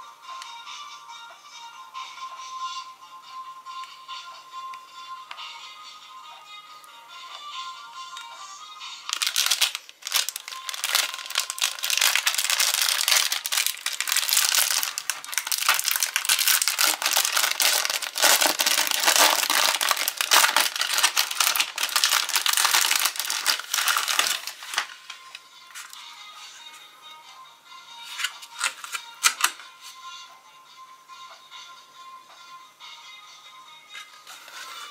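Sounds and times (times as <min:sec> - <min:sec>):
plastic wrapper crinkling and tearing: 0:09.1 - 0:26.0.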